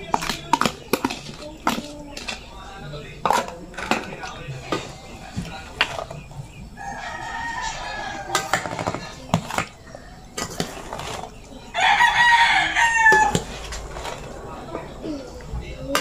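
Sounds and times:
spoon scraping metal bowl: 0:00.0 - 0:02.5, 0:10.4 - 0:11.5
rooster crowing: 0:06.7 - 0:08.7, 0:11.7 - 0:13.5.

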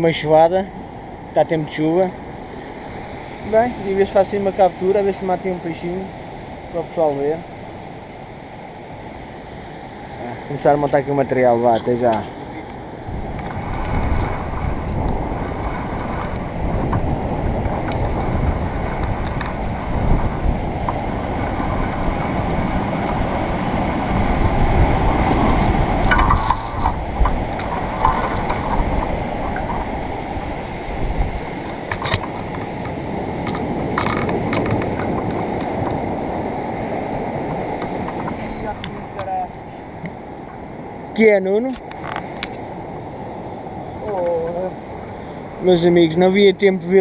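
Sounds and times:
wind buffeting microphone: 0:00.0 - 0:47.0
surf breaking on rocks: 0:09.2 - 0:46.2.

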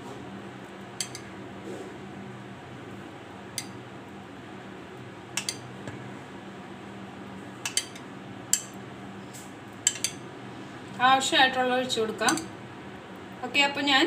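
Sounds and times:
steady low hum: 0:00.0 - 0:14.0
metal spoon clinking on glass: 0:09.9 - 0:10.2.

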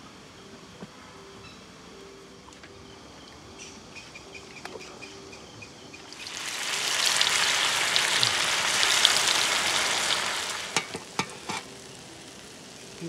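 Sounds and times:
bread deep-frying in hot oil: 0:06.0 - 0:13.0.

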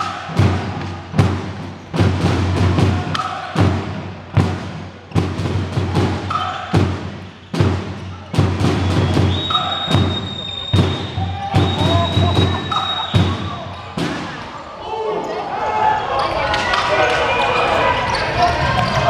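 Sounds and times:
drum beating in a hall: 0:00.0 - 0:14.6.

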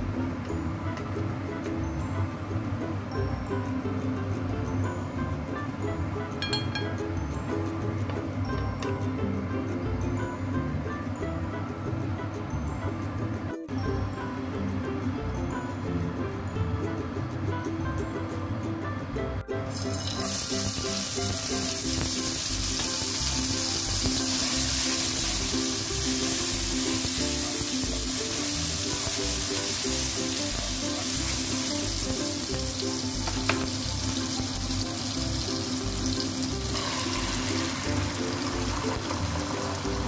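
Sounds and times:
background music: 0:00.0 - 0:40.0
garlic sizzling in hot oil: 0:19.7 - 0:40.0.

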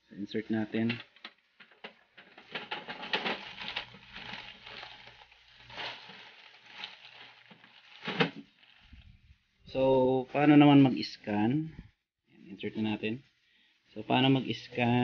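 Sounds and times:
paper rustling and crackling: 0:00.6 - 0:09.3.

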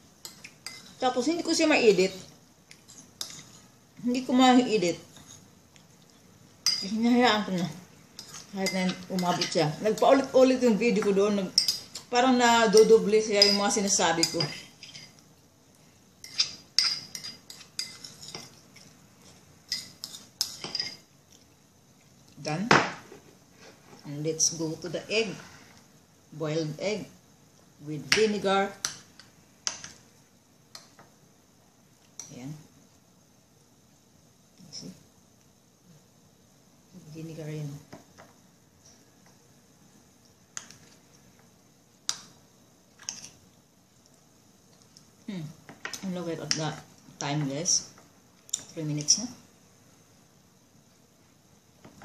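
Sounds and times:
utensil clinking against a dish: 0:16.2 - 0:18.6.

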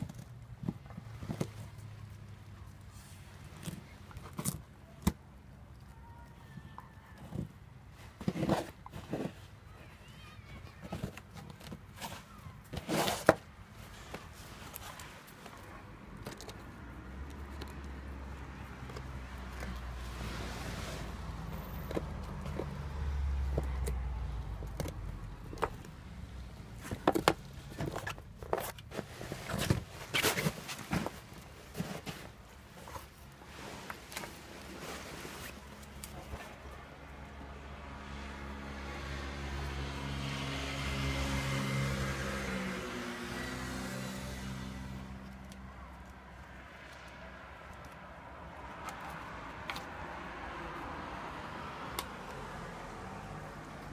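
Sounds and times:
vehicle engine hum: 0:13.7 - 0:30.0, 0:30.8 - 0:53.9.

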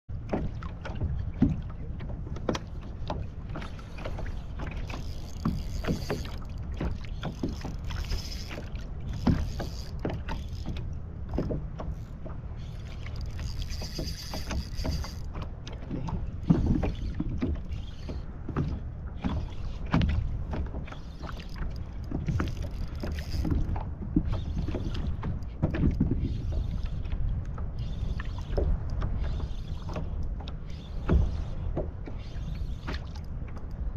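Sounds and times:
wind and water against hull: 0:00.0 - 0:33.9
small knocks and clicks: 0:00.2 - 0:33.8
fishing reel whirring: 0:03.8 - 0:15.4, 0:16.4 - 0:18.3, 0:20.9 - 0:25.5, 0:26.2 - 0:27.1, 0:27.7 - 0:30.0, 0:30.6 - 0:31.6, 0:32.2 - 0:33.3.

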